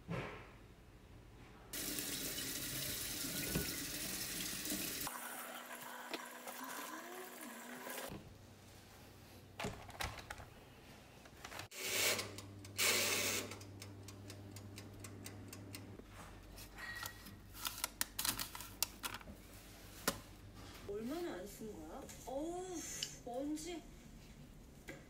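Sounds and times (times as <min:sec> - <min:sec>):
tap water running into sink: 0:01.8 - 0:08.1.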